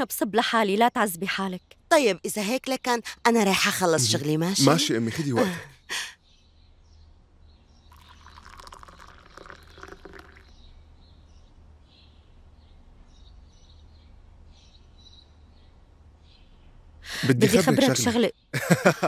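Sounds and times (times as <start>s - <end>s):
faint birds chirping: 0.0s - 19.0s
tea pouring into a glass: 7.9s - 10.6s.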